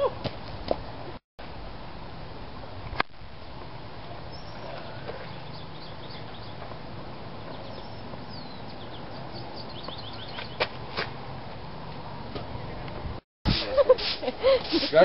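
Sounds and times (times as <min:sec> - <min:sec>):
small birds chirping: 0:04.0 - 0:10.6.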